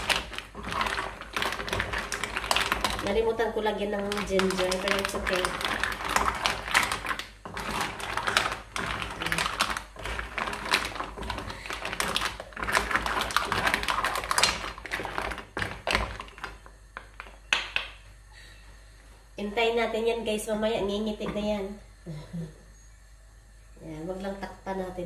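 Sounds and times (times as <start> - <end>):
mussel shells clattering in a pot: 0.0 - 18.0.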